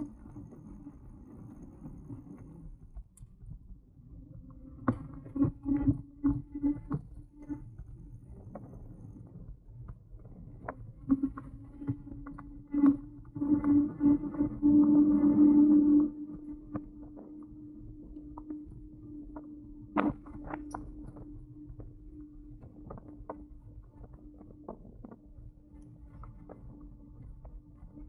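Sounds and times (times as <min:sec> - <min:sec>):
low motor hum: 0:10.6 - 0:28.0.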